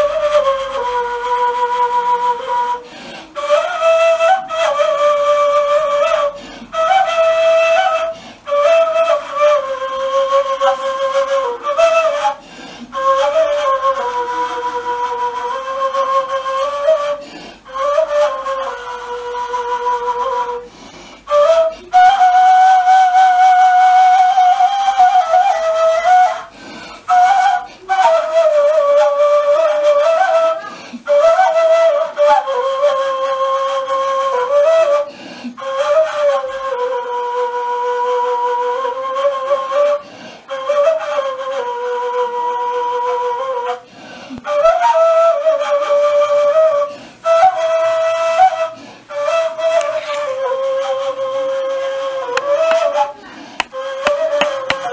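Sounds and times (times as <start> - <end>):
end-blown flute solo melody: 44.4 - 54.9.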